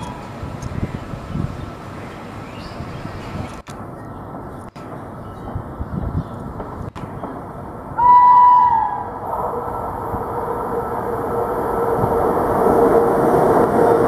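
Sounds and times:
approaching train running noise: 0.0 - 14.0
locomotive horn blast: 8.0 - 9.6.

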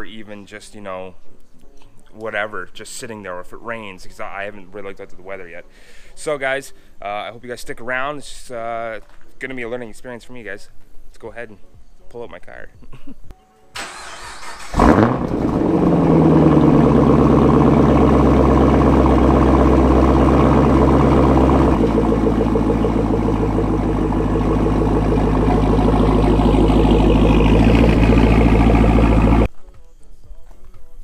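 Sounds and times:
car engine starting and idling: 13.8 - 29.5.

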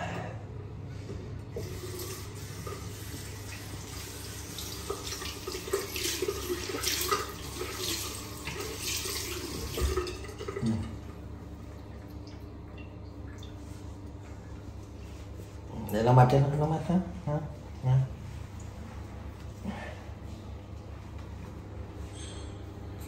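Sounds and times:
water running into sink: 1.5 - 11.2.

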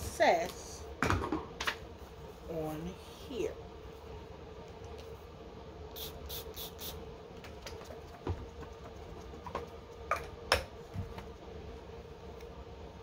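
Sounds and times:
perfume spray bottle hissing: 5.9 - 7.0.

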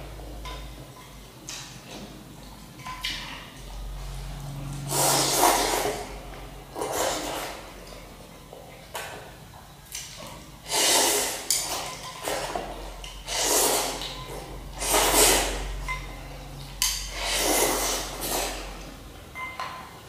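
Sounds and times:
boy slurping noodles: 4.8 - 6.2, 6.8 - 7.6, 10.6 - 12.6, 13.2 - 14.1, 14.8 - 15.6, 17.1 - 18.7.

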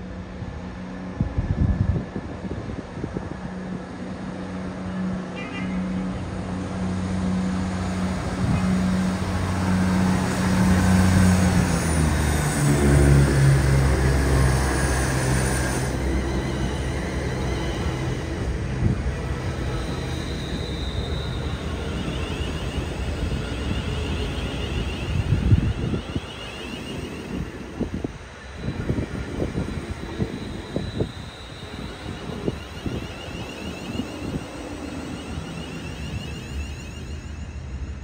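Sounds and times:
train hum dropping in pitch: 0.0 - 38.0
train rumbling on rails: 0.0 - 38.0.

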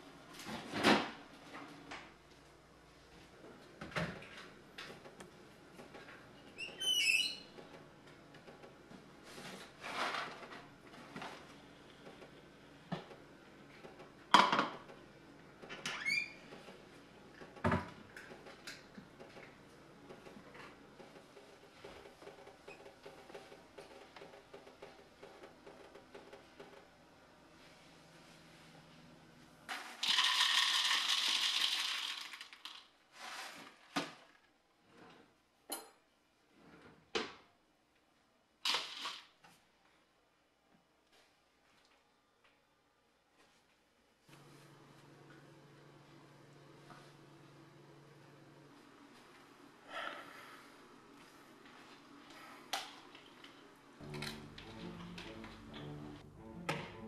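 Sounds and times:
rustling scrape: 9.2 - 11.4, 33.1 - 34.0
dry cereal pouring into plastic bowl: 29.7 - 33.6.

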